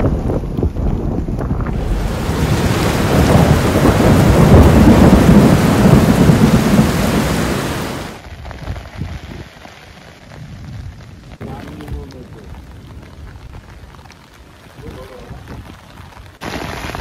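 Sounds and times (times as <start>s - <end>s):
thunder rumbling: 0.0s - 8.2s
heavy rain: 0.0s - 17.0s.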